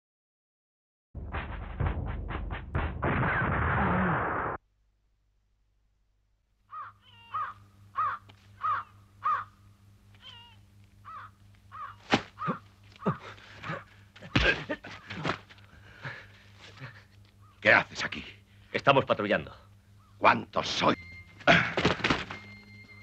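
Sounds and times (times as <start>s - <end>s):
blows and thuds of fistfight: 1.2s - 4.5s, 12.0s - 12.5s
bird calling: 6.7s - 17.7s, 19.6s - 23.0s.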